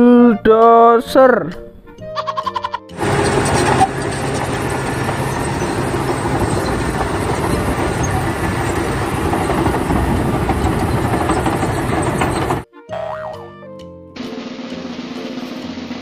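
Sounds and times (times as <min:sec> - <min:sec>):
diesel engine under load: 0:03.0 - 0:12.7
steel tracks clattering: 0:03.0 - 0:12.7.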